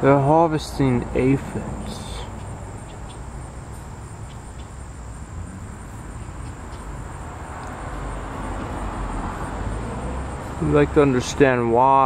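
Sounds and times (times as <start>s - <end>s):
steady low rumble: 0.0s - 9.2s.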